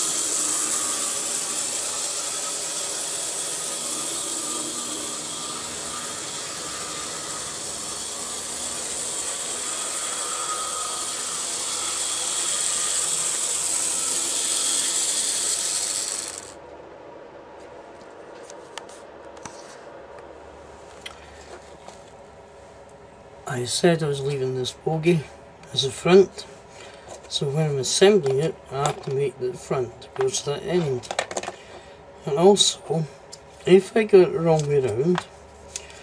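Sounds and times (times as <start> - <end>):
model train motor whirring: 0.0 - 16.6.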